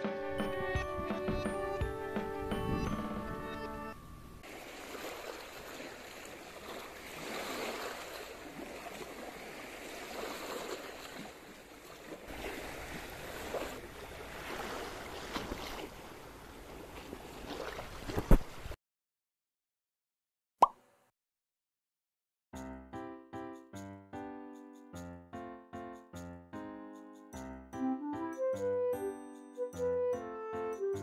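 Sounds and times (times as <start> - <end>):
waves washing over stony shore: 4.5 - 15.8.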